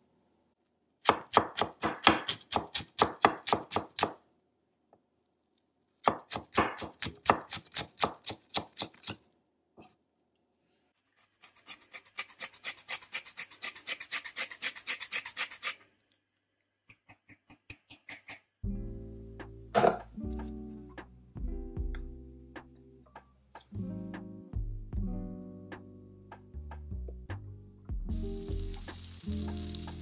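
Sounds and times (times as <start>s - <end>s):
knife chopping on wooden board: 1.0s - 4.2s.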